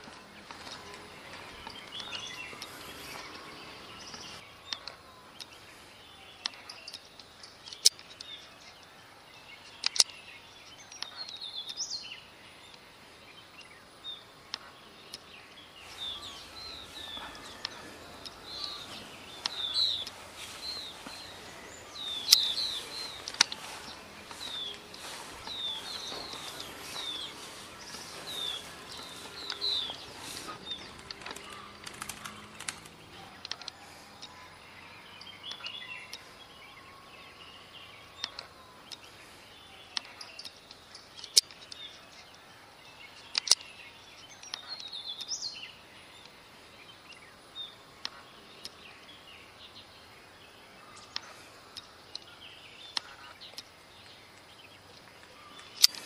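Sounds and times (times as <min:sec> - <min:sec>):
songbirds chirping: 0:00.0 - 0:56.0
steady outdoor hiss: 0:00.0 - 0:56.0
sharp clicks: 0:06.4 - 0:08.4, 0:09.7 - 0:10.2, 0:15.9 - 0:34.3, 0:43.2 - 0:43.7.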